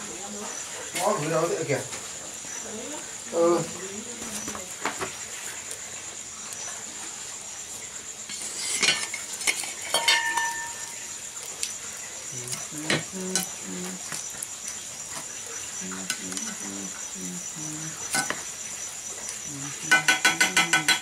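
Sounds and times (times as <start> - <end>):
pot lid and spoon clanking: 8.7 - 11.0.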